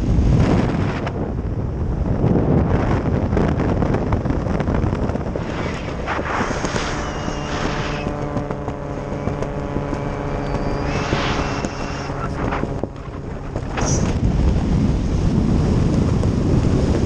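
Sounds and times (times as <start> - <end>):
wind rushing over microphone: 0.0 - 17.0
steady humming drone: 4.5 - 17.0.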